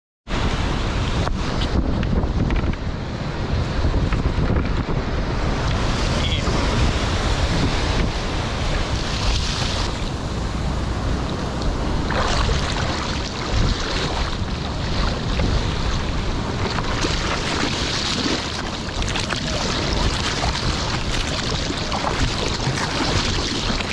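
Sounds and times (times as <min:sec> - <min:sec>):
ocean surf washing: 0:00.3 - 0:23.9
wind buffeting microphone: 0:00.3 - 0:23.9
water splashes: 0:05.6 - 0:23.9.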